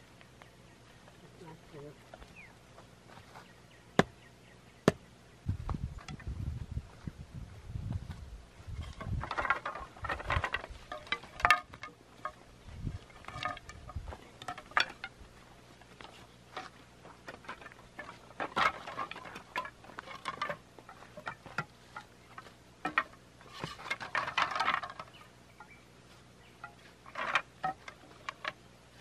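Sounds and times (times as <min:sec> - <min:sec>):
bamboo poles knocking: 0:04.8 - 0:05.0, 0:08.9 - 0:15.2, 0:15.9 - 0:25.7, 0:26.5 - 0:28.6.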